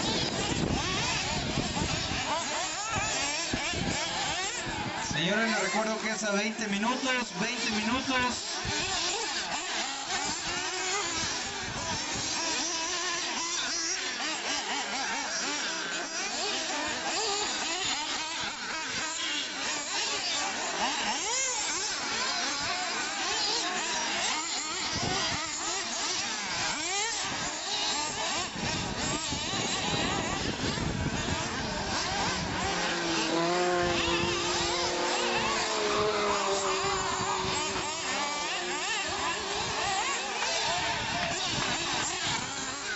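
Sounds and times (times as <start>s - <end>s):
small engines whining: 0.0s - 42.9s.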